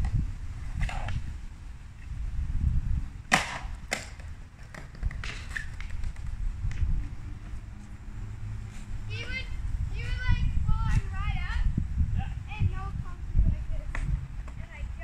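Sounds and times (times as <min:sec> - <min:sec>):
skateboard wheels rolling on concrete: 0:00.0 - 0:15.0
skateboard clacking down: 0:03.3 - 0:06.2.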